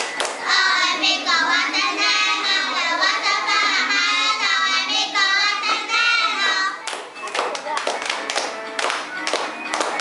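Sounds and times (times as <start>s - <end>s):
girls singing together: 0.0s - 7.0s.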